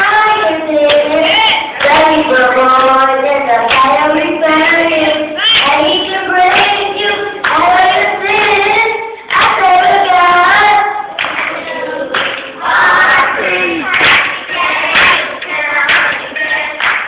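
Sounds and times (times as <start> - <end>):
children's choir singing: 0.0 - 17.0
hand clapping: 0.8 - 2.0, 6.5 - 7.7, 9.3 - 9.6, 11.2 - 17.0.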